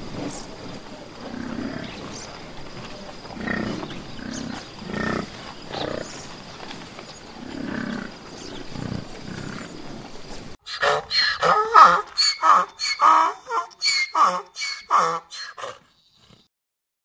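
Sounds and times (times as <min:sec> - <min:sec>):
bison grunting: 0:00.0 - 0:10.1.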